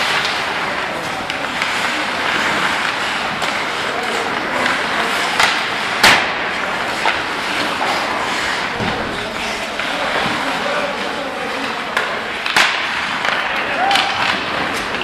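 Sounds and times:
skate blades scraping ice: 0.0s - 15.0s
sharp crack of hard impact: 5.4s - 6.6s.

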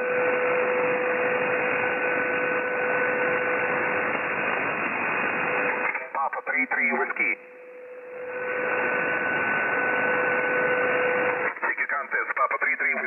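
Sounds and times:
radio receiver hiss: 5.7s - 7.4s, 11.3s - 13.0s.

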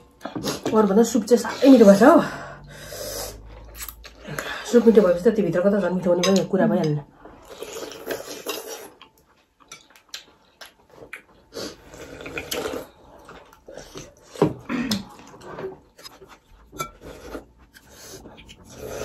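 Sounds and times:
people slurping soup: 7.3s - 9.1s, 11.5s - 15.9s, 16.7s - 19.0s.

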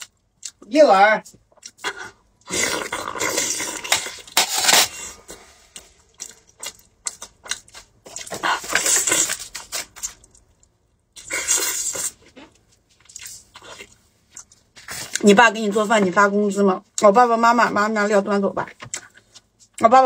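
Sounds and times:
person chewing wet food: 0.0s - 4.4s, 5.4s - 15.2s.

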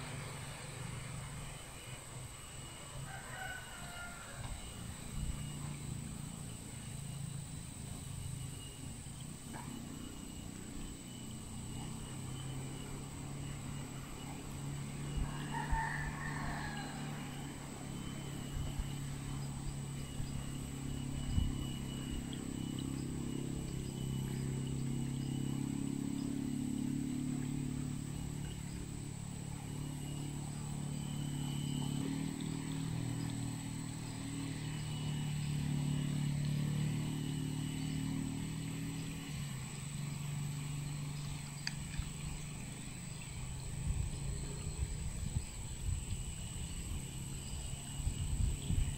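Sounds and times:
steady low hum: 0.0s - 48.9s
rooster crowing: 2.9s - 4.8s, 15.1s - 18.1s.

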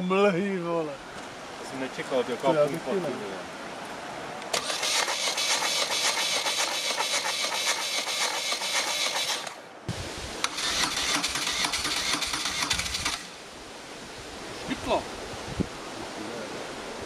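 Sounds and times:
motorcycle engine cranking on starter: 4.6s - 9.6s, 10.4s - 13.3s.

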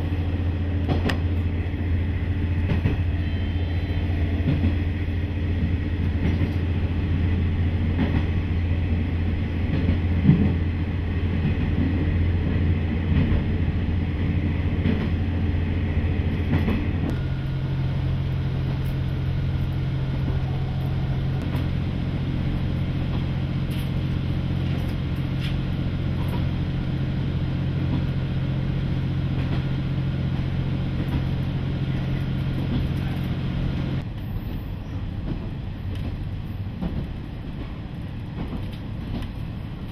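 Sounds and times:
diesel engine drone: 0.0s - 34.7s
train wheels on rails: 0.0s - 39.9s.

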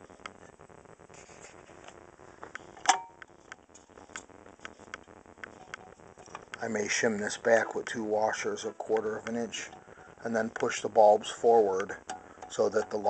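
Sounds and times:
faint clicks and taps of metal parts: 11.8s - 13.0s.

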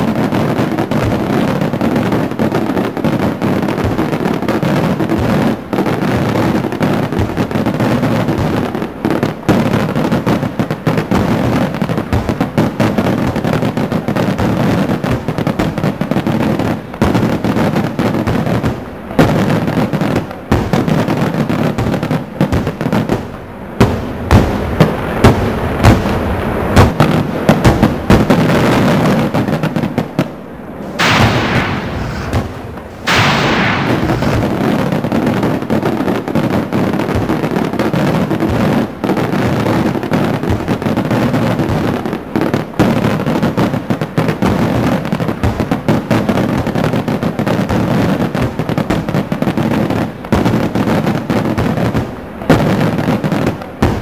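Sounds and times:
fireworks crackling and banging: 0.0s - 54.0s
loud firework bangs: 0.0s - 54.0s
steady hiss: 0.0s - 54.0s.

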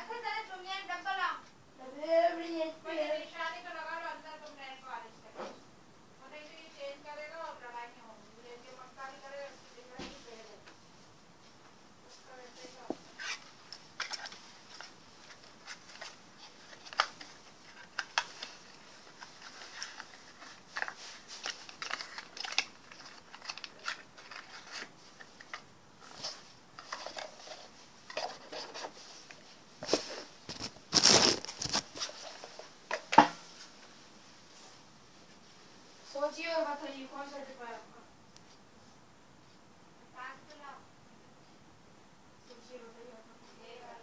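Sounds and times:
packaging rustling: 13.1s - 33.2s.

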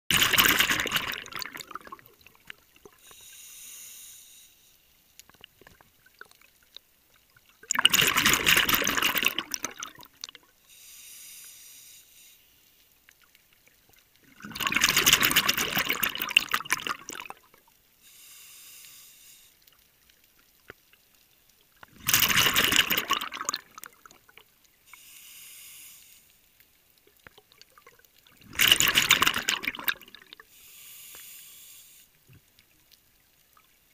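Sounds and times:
exhaled bubbles rushing: 0.1s - 3.0s, 7.6s - 10.4s, 14.2s - 17.6s, 21.9s - 24.4s, 27.7s - 30.4s
diver inhaling through regulator: 3.0s - 4.8s, 10.6s - 12.7s, 18.0s - 19.6s, 24.9s - 26.4s, 30.4s - 32.2s.

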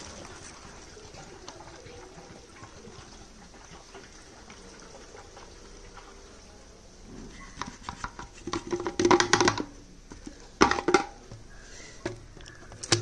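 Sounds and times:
plastic bottle crackling: 7.6s - 11.4s, 12.0s - 13.0s.

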